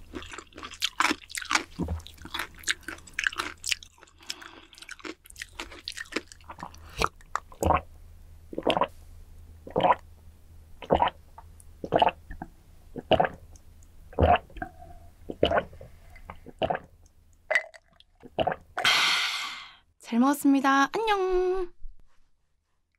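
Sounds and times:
chewing with wet mouth clicks: 0:00.1 - 0:07.6
person gulping a drink: 0:00.1 - 0:07.9, 0:08.5 - 0:08.9, 0:09.7 - 0:10.0, 0:10.8 - 0:11.2, 0:11.8 - 0:13.5, 0:14.2 - 0:19.3.

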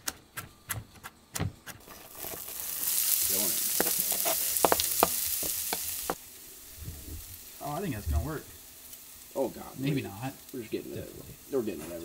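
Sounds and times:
vegetables sizzling in a frying pan: 0:01.8 - 0:12.0.

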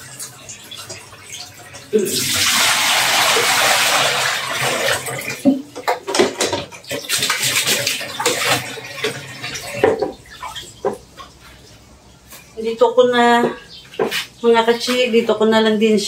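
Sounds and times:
tap water running into tub: 0:00.0 - 0:12.5
water sloshing: 0:00.6 - 0:12.6
plastic tub knocking on sink: 0:05.4 - 0:08.6, 0:09.7 - 0:10.2, 0:10.8 - 0:11.1.

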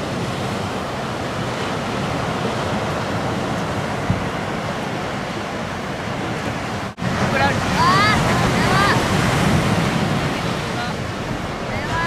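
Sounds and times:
ocean surf breaking: 0:00.0 - 0:12.0
wind rumbling on microphone: 0:00.0 - 0:12.0.

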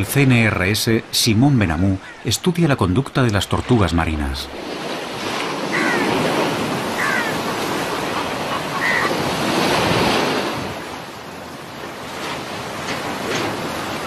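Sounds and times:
surf washing onto beach: 0:03.7 - 0:14.0.

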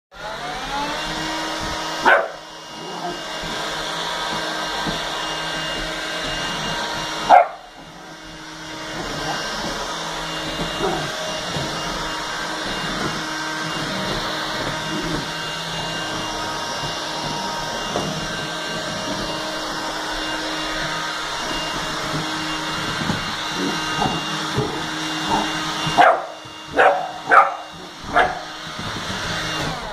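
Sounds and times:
vacuum cleaner motor whine: 0:00.1 - 0:29.9
puppy barking: 0:02.0 - 0:03.2, 0:07.2 - 0:07.7, 0:10.7 - 0:11.2, 0:23.9 - 0:28.6.

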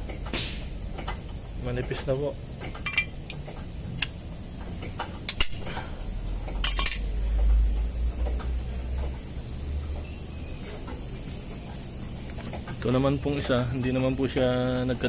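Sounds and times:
metal parts clinking: 0:02.1 - 0:03.3, 0:06.5 - 0:07.1.

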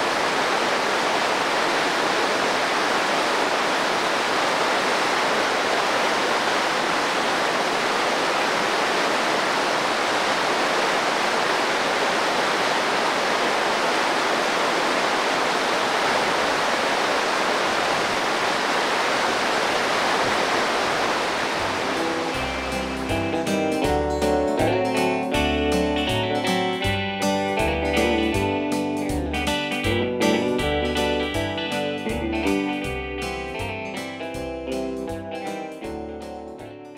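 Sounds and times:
creek rushing over boulders: 0:00.0 - 0:23.3
guitar music: 0:21.6 - 0:36.9.

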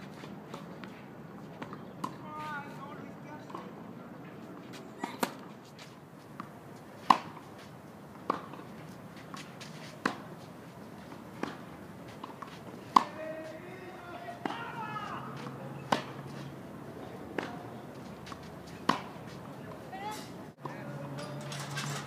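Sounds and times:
tennis ball struck by rackets: 0:05.1 - 0:05.5, 0:06.4 - 0:07.5, 0:08.2 - 0:08.7, 0:09.3 - 0:10.3, 0:11.1 - 0:13.2, 0:14.4 - 0:16.4, 0:17.4 - 0:20.9.

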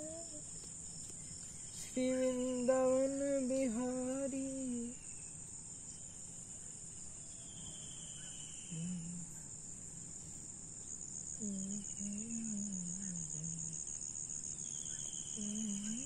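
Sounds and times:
person humming a slow tune: 0:00.0 - 0:00.5, 0:01.8 - 0:05.0, 0:08.7 - 0:09.5, 0:11.4 - 0:13.9, 0:15.4 - 0:16.0
crickets chirping: 0:00.0 - 0:16.0.

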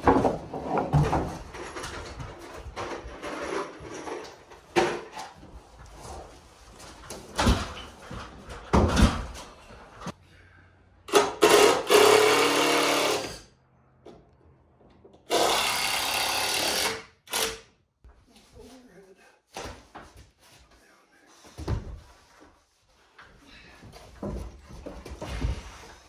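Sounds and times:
power drill driving fasteners: 0:11.1 - 0:13.5, 0:15.3 - 0:17.7.

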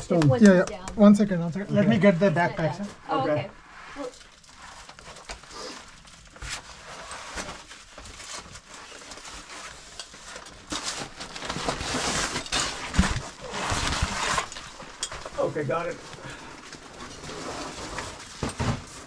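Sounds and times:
nylon backpack rustling: 0:10.4 - 0:19.0.

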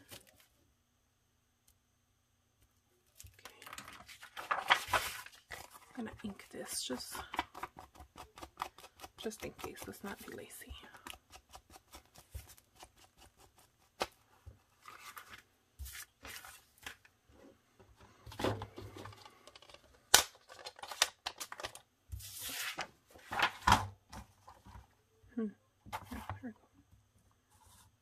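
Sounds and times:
paper rustling and sliding: 0:03.5 - 0:05.9, 0:14.7 - 0:17.1, 0:20.6 - 0:23.9.

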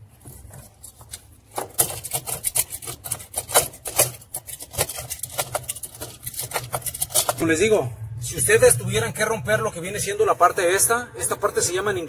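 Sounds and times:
knife blade scraping crust: 0:00.4 - 0:07.4.

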